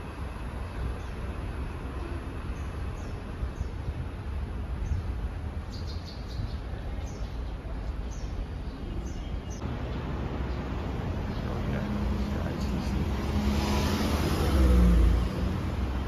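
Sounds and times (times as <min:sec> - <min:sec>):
bird chirping: 0:04.8 - 0:13.0.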